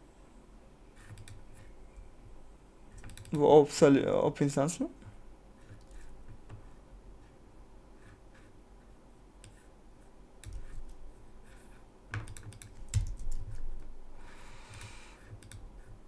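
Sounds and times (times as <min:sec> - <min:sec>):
keyboard typing: 0:01.0 - 0:01.7, 0:03.0 - 0:03.5, 0:10.4 - 0:11.0, 0:12.1 - 0:13.6
soft hiss: 0:13.4 - 0:16.0.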